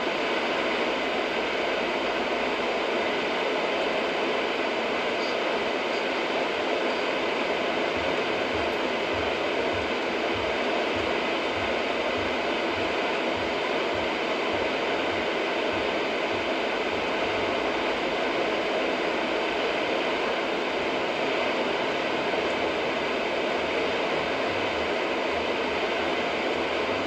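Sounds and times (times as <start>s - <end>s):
soft low pulsing: 7.9s - 18.2s.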